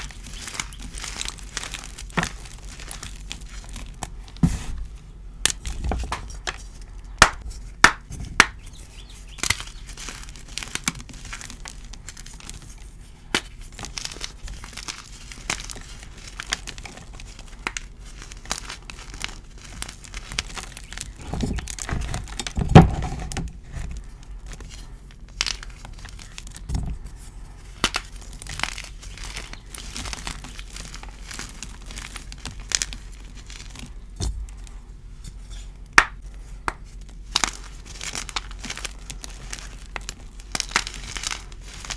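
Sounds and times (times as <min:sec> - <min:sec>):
chalk blocks crunching by hand: 0:00.0 - 0:04.8, 0:27.7 - 0:34.5, 0:36.0 - 0:41.9.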